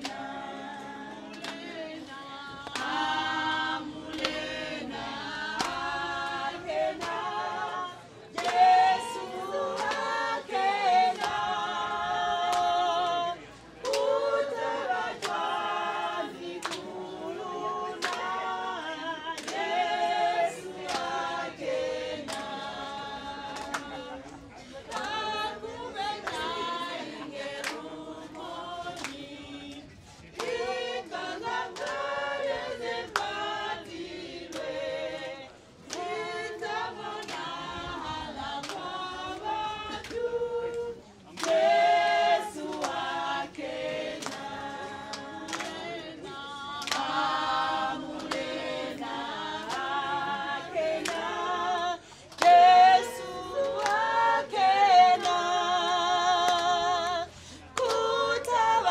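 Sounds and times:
choir singing a cappella: 0.0 - 58.9.

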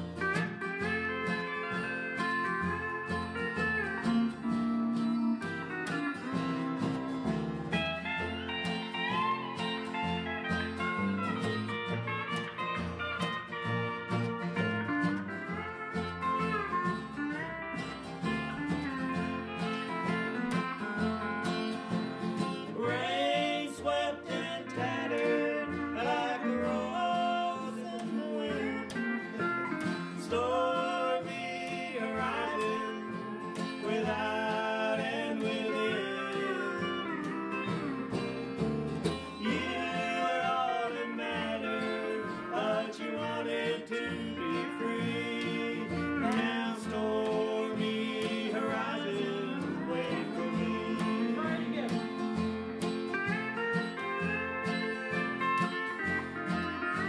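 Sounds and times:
acoustic guitar: 0.0 - 57.0
pedal steel guitar sliding notes: 0.0 - 57.0
upright bass: 0.0 - 57.0
person singing: 22.6 - 38.4, 39.1 - 52.4.

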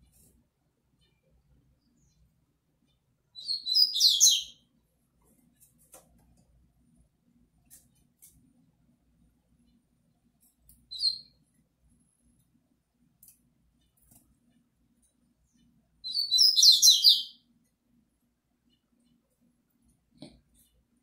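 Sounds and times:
bird twittering song: 0.9 - 4.7, 10.8 - 11.4, 15.4 - 17.5.

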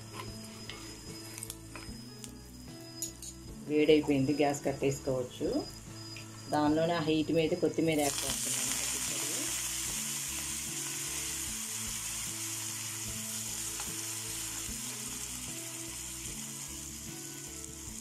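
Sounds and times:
oil sizzling in a pan: 7.1 - 18.0.

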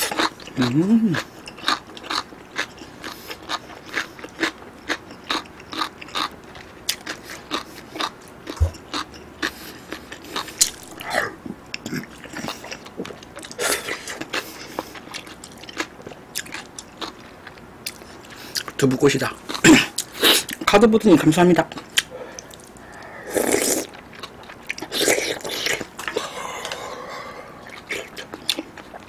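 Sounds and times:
wet chewing: 21.7 - 29.0.

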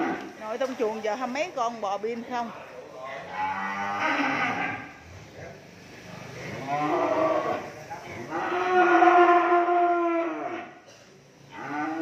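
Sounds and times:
cattle mooing: 3.3 - 5.0, 6.5 - 10.8, 11.5 - 12.0.

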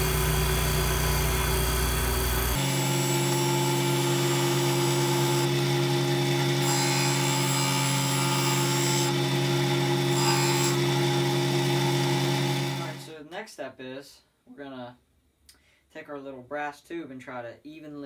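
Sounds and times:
sander motor hum: 0.0 - 13.1.

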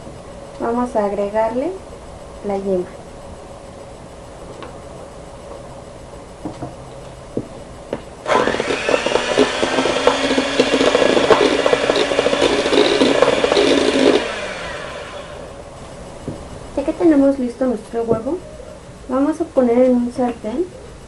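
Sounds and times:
electric hand mixer whining: 8.2 - 15.7.

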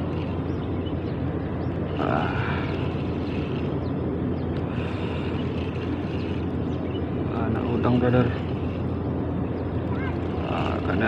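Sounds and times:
boat engine rumble: 0.0 - 11.0.

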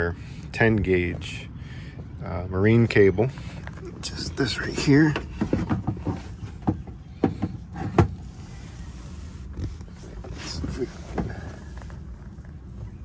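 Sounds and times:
steady low rumble: 0.0 - 13.0
cable knocking against boat console: 5.1 - 8.2.

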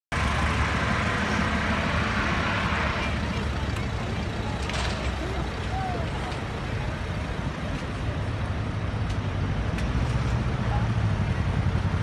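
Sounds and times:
car engine idling: 0.1 - 9.5
street traffic: 0.1 - 12.0.

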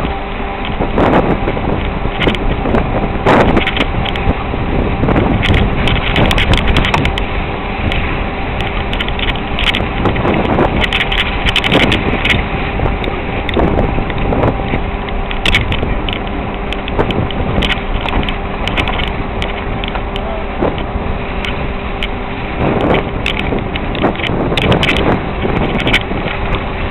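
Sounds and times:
knocks and rattles over bumps: 0.0 - 26.9
vehicle engine running: 0.0 - 26.9.

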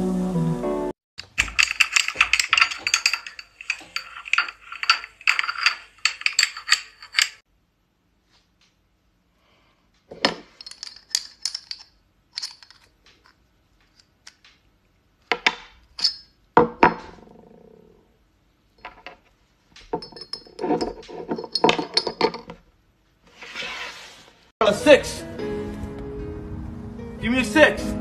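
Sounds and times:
scissors and glass clinking on table: 1.4 - 7.4.

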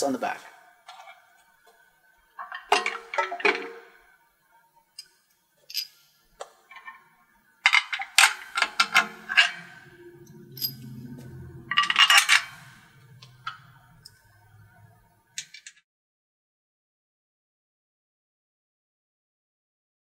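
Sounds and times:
bolts and nuts clinking in hand: 2.4 - 3.7, 5.0 - 6.0, 7.7 - 9.8, 10.4 - 14.2.

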